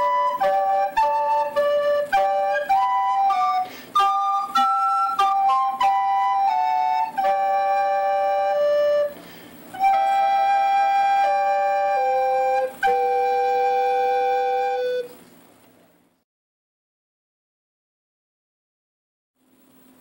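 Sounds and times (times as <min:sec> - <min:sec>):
slow flute music: 0:00.0 - 0:15.2.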